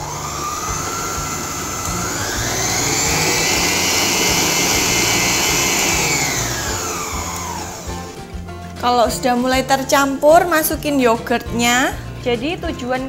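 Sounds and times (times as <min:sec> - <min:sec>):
stand mixer motor whine: 0:00.0 - 0:08.3.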